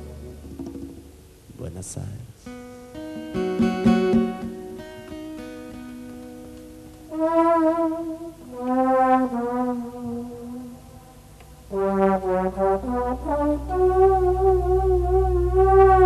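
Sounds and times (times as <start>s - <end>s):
bass: 0.0s - 1.6s, 9.2s - 16.0s
strummed acoustic guitar chord: 2.5s - 7.8s
brass section playing a melody: 7.0s - 16.0s.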